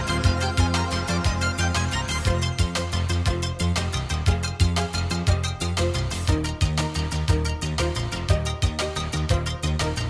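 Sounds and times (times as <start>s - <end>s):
music with fast beat and bass: 0.0s - 10.0s.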